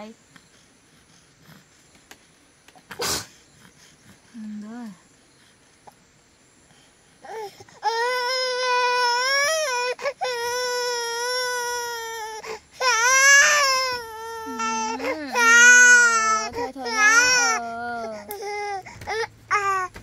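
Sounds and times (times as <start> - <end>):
baby crying: 7.3 - 19.9.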